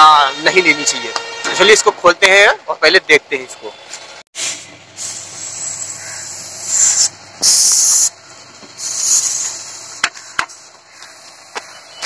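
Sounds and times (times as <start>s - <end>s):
high hiss: 4.4s - 8.1s, 8.8s - 10.0s.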